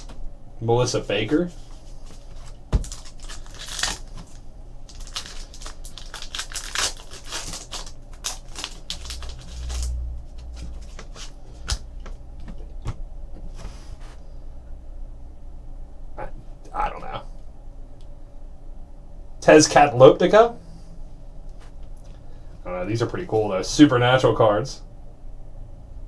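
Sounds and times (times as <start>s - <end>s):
foil card pack crinkling: 1.6s - 11.8s
trading cards flipping: 1.8s - 13.0s.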